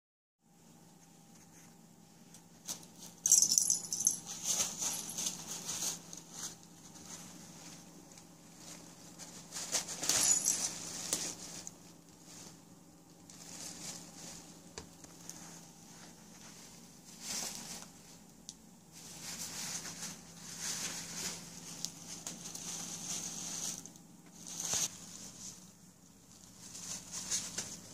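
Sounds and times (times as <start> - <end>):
cat toy bells jingling: 3.2 - 5.6.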